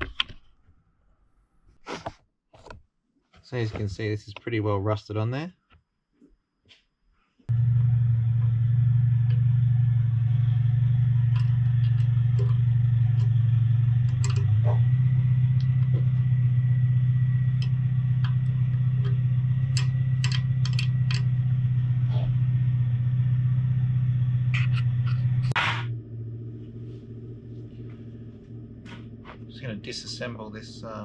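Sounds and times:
low mechanical hum: 7.5s - 31.0s
spanner clicking on bolt: 14.1s - 14.6s, 17.6s - 21.3s.

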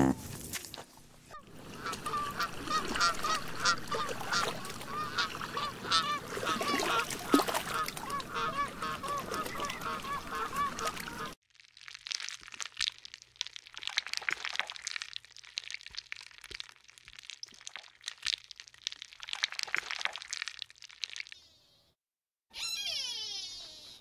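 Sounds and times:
flock of birds calling: 1.7s - 11.4s.

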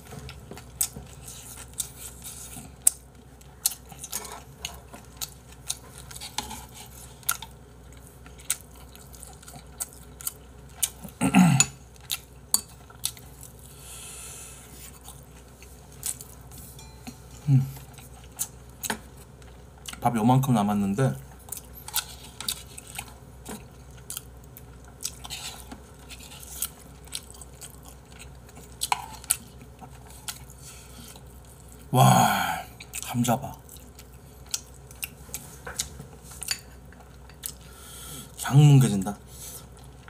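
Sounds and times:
chewing: 0.1s - 13.7s, 21.3s - 31.9s, 32.8s - 38.4s.

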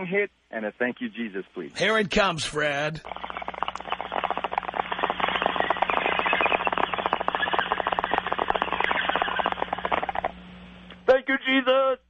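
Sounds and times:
low hum: 3.0s - 11.1s.

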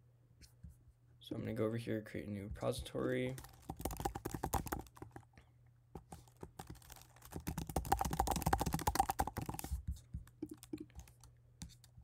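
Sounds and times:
typing on computer keyboard: 3.4s - 5.2s, 6.0s - 12.0s.

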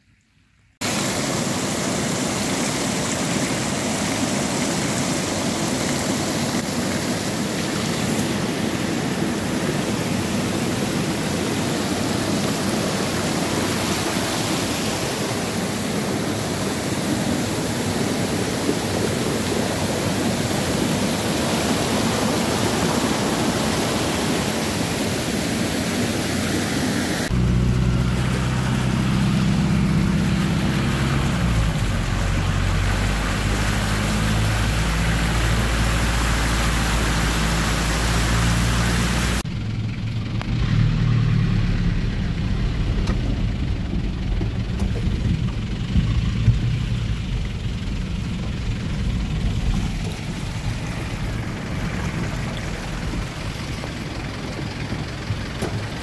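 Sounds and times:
floodwater rushing: 0.8s - 39.5s, 40.6s - 56.0s
vehicle engine running inside: 27.2s - 56.0s.

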